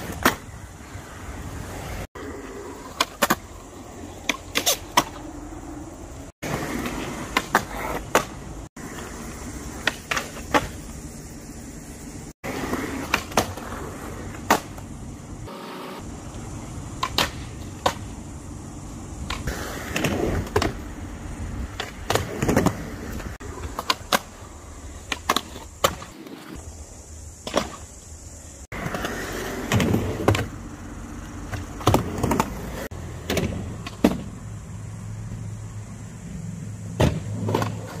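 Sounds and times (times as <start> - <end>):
skateboard clacks: 0.0 - 0.5, 2.8 - 5.4, 6.4 - 10.8, 12.5 - 14.9, 16.3 - 18.2, 21.7 - 26.4, 31.2 - 34.4
skateboard wheels rolling on concrete: 0.0 - 38.0.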